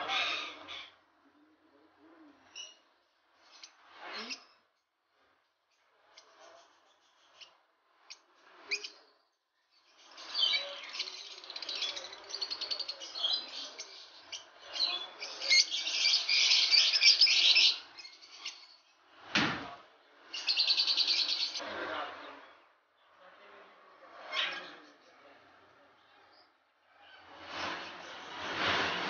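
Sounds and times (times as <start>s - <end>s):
lovebirds chirping: 0.0s - 4.8s, 5.7s - 19.2s, 20.1s - 21.6s.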